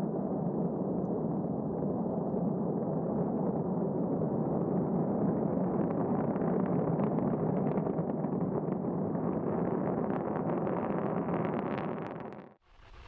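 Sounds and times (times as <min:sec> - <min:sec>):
rocket engine crackling: 0:05.9 - 0:13.0.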